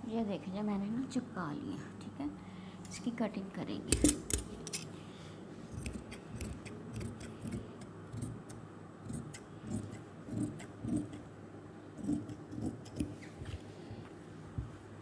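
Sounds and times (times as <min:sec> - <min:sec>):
shears snipping fabric: 0:05.7 - 0:11.2, 0:12.0 - 0:13.6.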